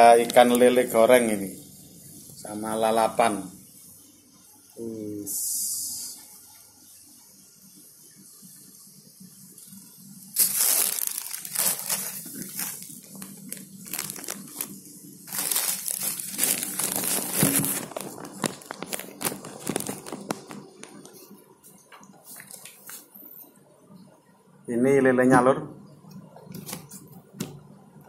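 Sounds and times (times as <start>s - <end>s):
paper wrapping crinkling: 10.4s - 21.4s.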